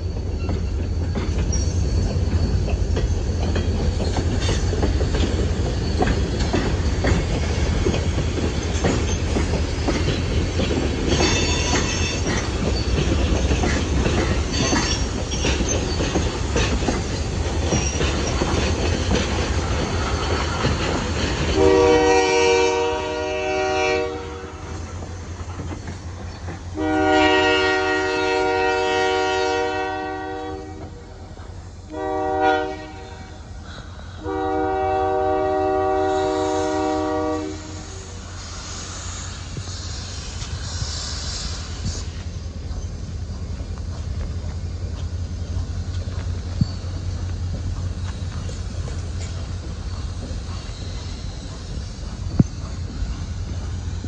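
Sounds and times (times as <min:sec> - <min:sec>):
wheels clacking over rails: 0:00.0 - 0:22.9, 0:42.4 - 0:54.0
train rumbling: 0:00.0 - 0:54.0
steam whistle blasts: 0:21.6 - 0:24.9, 0:26.8 - 0:31.0, 0:31.9 - 0:33.5, 0:34.2 - 0:38.3.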